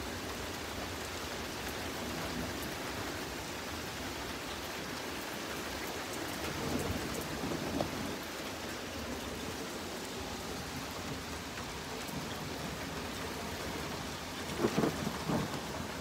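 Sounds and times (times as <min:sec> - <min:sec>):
heavy rain falling: 0:00.0 - 0:16.0.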